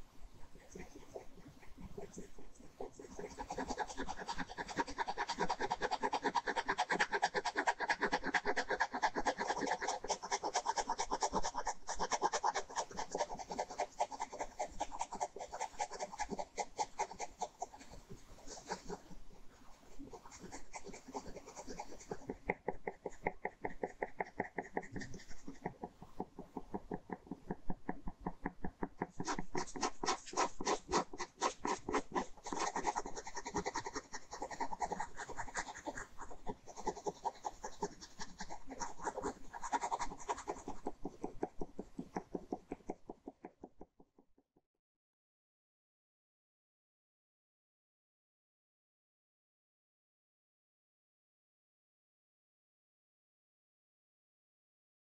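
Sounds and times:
ballpoint pen scratching on paper: 0:00.4 - 0:43.8.

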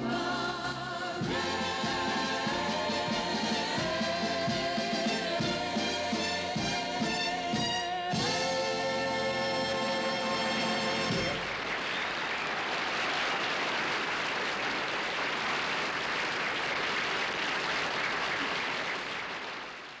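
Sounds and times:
audience applause: 0:11.3 - 0:20.0.

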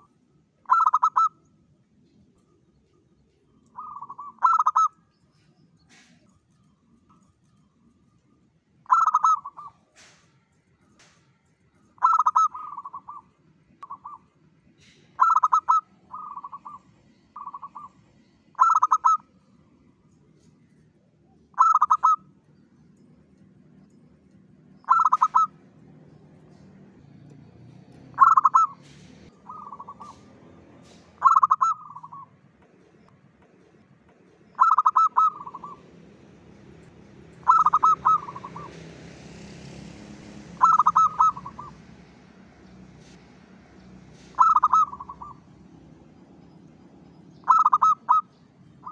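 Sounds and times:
dove cooing: 0:00.0 - 0:01.4, 0:03.7 - 0:05.0, 0:08.8 - 0:10.2, 0:12.0 - 0:14.3, 0:14.9 - 0:18.0, 0:18.6 - 0:19.2, 0:21.5 - 0:22.3, 0:24.8 - 0:25.6, 0:28.1 - 0:32.4, 0:34.4 - 0:35.9, 0:37.4 - 0:38.8, 0:40.5 - 0:41.9, 0:44.2 - 0:45.5, 0:47.4 - 0:48.9.

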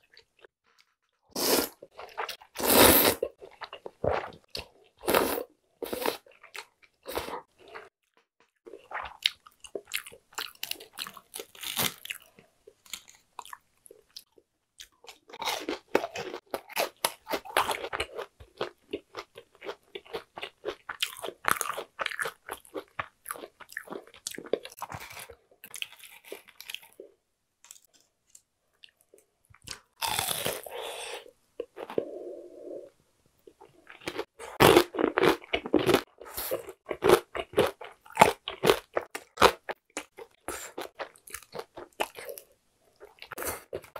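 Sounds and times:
crunching and chewing fried food: 0:08.7 - 0:27.1, 0:27.7 - 0:30.7, 0:33.5 - 0:43.9.

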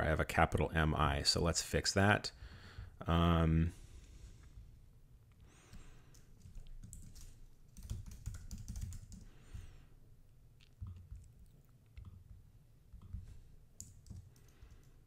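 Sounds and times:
typing on computer keyboard: 0:06.1 - 0:09.3, 0:13.0 - 0:15.0.

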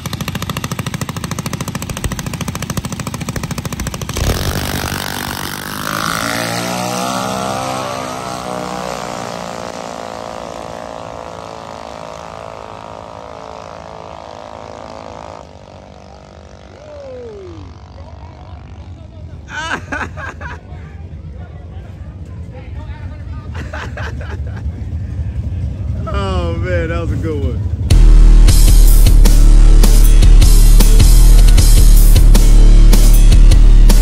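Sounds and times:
dragster engines popping and revving: 0:00.0 - 0:19.2.

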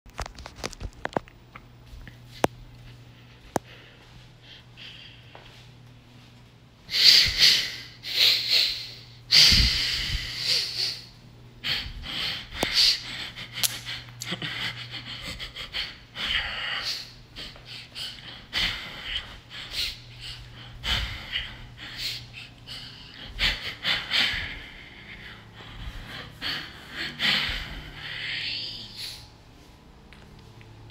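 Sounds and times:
faint low hum: 0:00.1 - 0:30.9
person gasping and snorting: 0:06.9 - 0:29.3.

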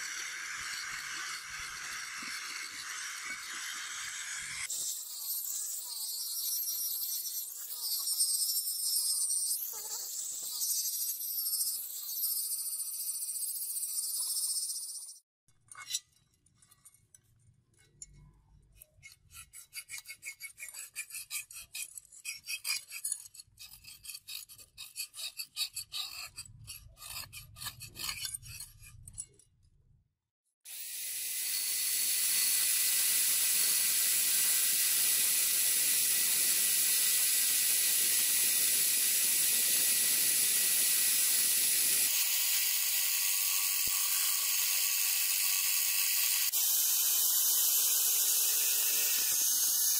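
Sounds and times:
rotary tool whining: 0:00.0 - 0:15.2, 0:30.7 - 0:49.9
abrasive rubbing on steel blade: 0:18.8 - 0:29.4.

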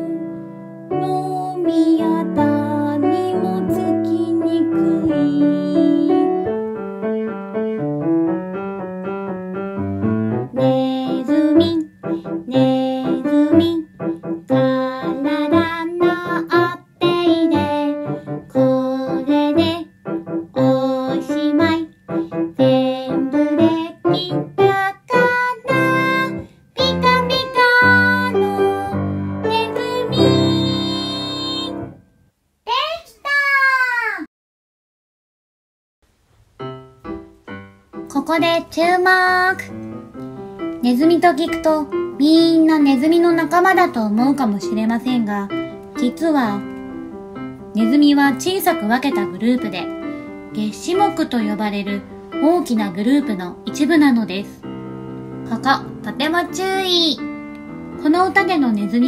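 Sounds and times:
woman singing children's song: 0:00.0 - 0:06.7, 0:10.5 - 0:31.8, 0:38.0 - 0:39.8, 0:40.7 - 0:46.8, 0:47.7 - 0:54.6, 0:55.5 - 0:57.2, 0:58.0 - 0:59.0
piano accompaniment: 0:00.0 - 0:32.4, 0:36.4 - 0:59.0.

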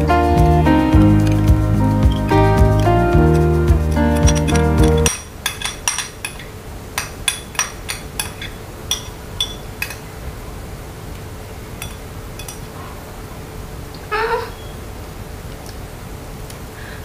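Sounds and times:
spoon clinking against glass bowl: 0:04.2 - 0:10.0, 0:11.8 - 0:12.7.

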